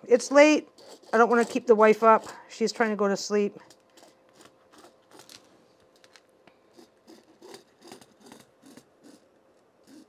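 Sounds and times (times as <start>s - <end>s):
marking tool scratching fabric: 0.2s - 2.4s, 4.0s - 5.3s, 6.7s - 10.0s.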